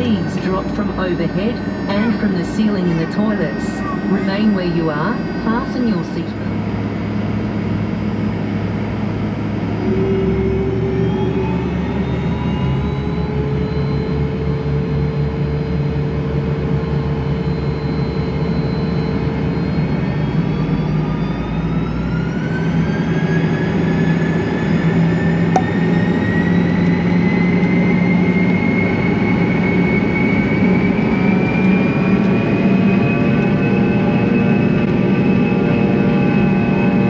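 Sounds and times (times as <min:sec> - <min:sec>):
jet engine whine rising in pitch: 0:00.0 - 0:37.0
jet engines running: 0:00.0 - 0:37.0.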